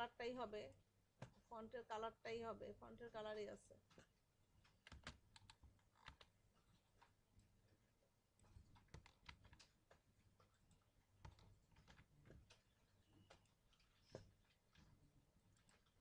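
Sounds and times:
keyboard keystrokes: 4.8 - 6.3.

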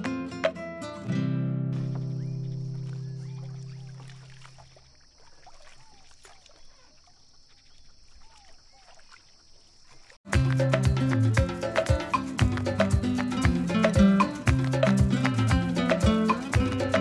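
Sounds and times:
guitar tune: 0.0 - 3.0, 10.3 - 17.0
short chirping calls: 2.0 - 10.1
latin-style music: 10.3 - 17.0.

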